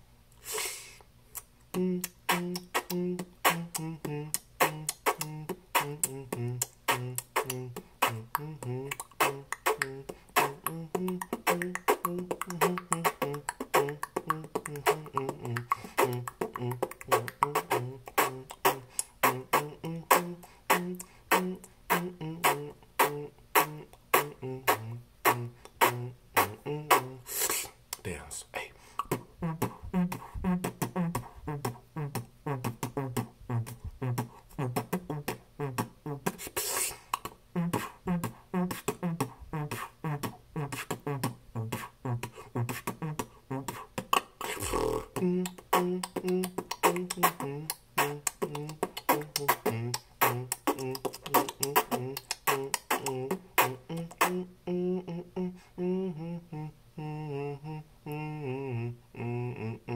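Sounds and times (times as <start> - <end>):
man beatboxing: 0.4 - 59.9
hummed bass line: 1.8 - 27.2.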